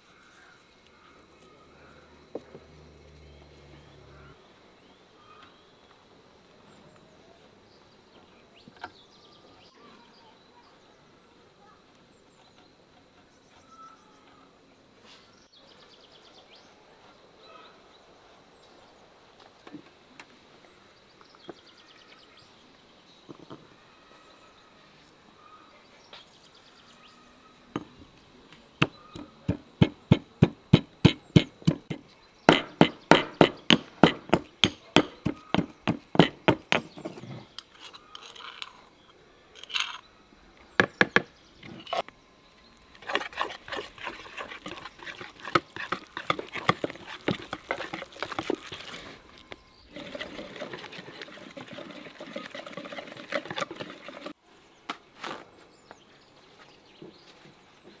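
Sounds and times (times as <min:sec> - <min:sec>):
pestle pounding in mortar: 0:28.8 - 0:37.1, 0:43.0 - 0:49.0, 0:49.9 - 0:54.4
whisk beating in plastic bowl: 0:43.0 - 0:49.0, 0:49.9 - 0:54.4.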